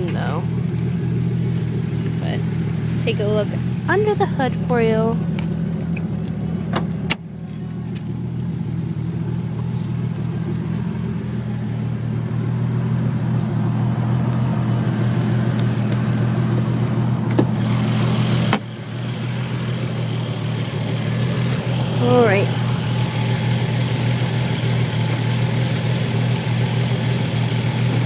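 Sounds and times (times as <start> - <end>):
car engine idling: 0.0 - 28.0.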